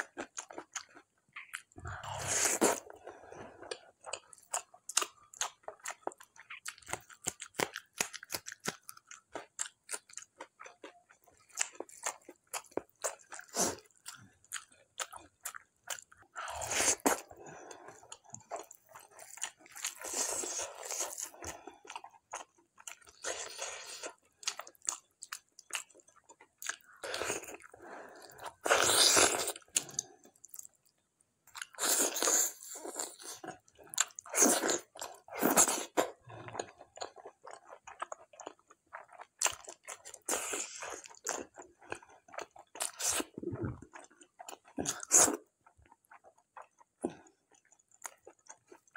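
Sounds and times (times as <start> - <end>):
chewing with wet mouth clicks: 36.5 - 48.9.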